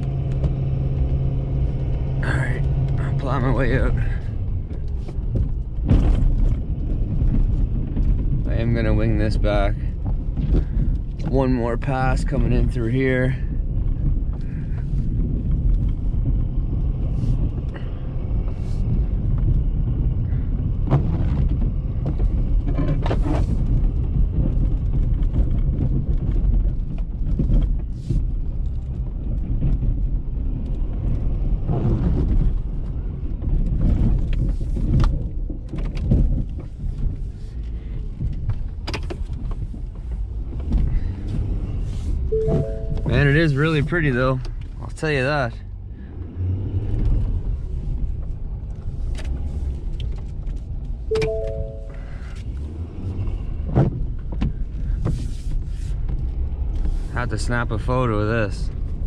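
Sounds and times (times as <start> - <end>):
diesel truck engine running: 0.0 - 8.4, 40.4 - 49.6, 50.7 - 53.6
snow plow knocks and thumps: 0.0 - 16.4, 20.8 - 30.3.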